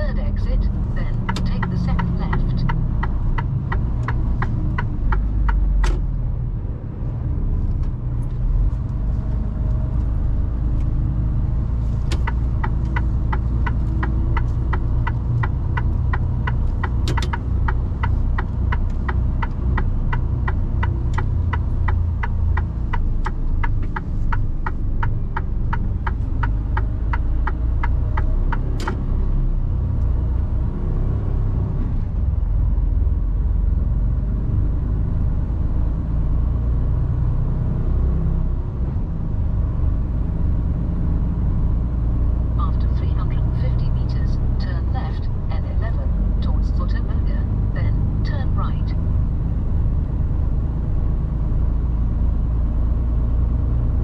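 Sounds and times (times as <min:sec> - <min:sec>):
turn indicator ticking: 0:00.0 - 0:06.2, 0:07.8 - 0:30.5
road rumble: 0:00.0 - 0:54.0
truck diesel engine: 0:00.0 - 0:54.0.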